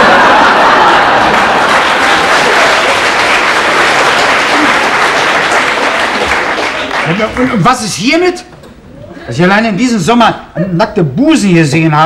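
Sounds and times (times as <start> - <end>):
studio audience applauding: 0.0 - 8.0.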